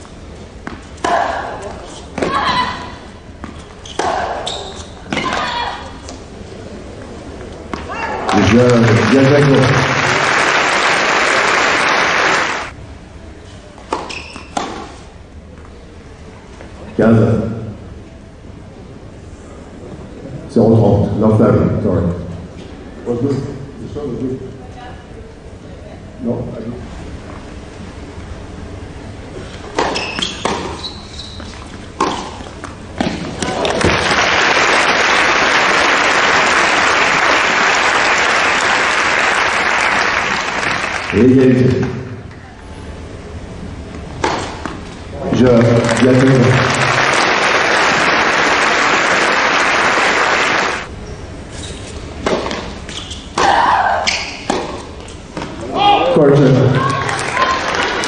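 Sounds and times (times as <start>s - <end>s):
crowd applauding: 8.3s - 12.7s, 33.6s - 41.3s, 45.5s - 50.9s, 56.8s - 58.0s.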